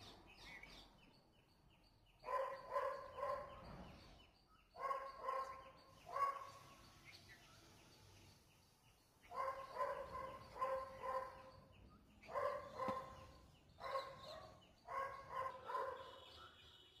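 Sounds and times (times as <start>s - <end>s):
dog barking: 2.2s - 3.7s, 4.8s - 6.6s, 9.3s - 11.6s, 12.2s - 16.3s.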